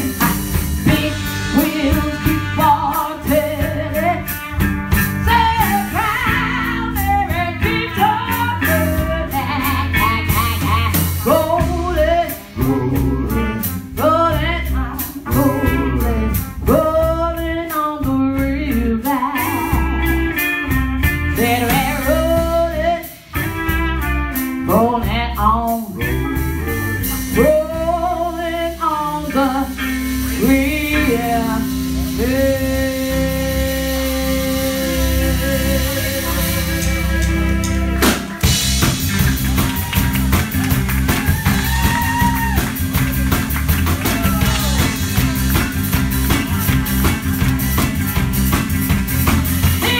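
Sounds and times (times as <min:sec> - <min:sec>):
bass line: 0:00.0 - 0:49.9
drum kit: 0:00.0 - 0:49.9
electric guitar: 0:00.0 - 0:49.9
trumpet sliding melody: 0:12.8 - 0:14.0.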